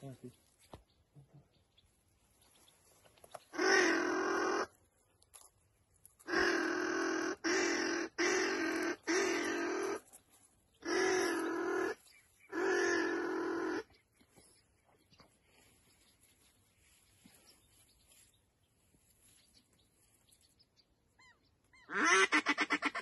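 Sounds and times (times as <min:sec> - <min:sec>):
duck call notes: 0:03.6 - 0:04.7, 0:06.3 - 0:10.0, 0:10.8 - 0:12.0, 0:21.8 - 0:23.0.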